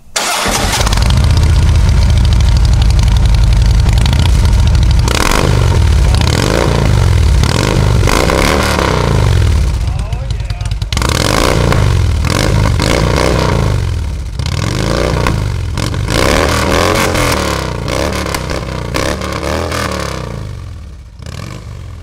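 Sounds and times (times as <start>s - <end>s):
motorcycle engine revving: 0.2s - 22.0s.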